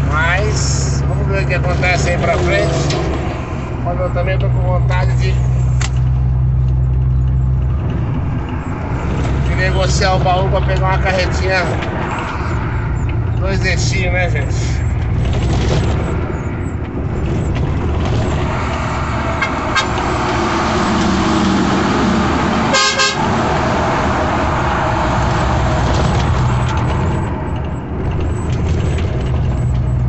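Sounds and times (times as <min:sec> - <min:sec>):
truck engine and road noise: 0:00.0 - 0:30.0
horn toot: 0:19.4 - 0:20.0, 0:22.7 - 0:23.4.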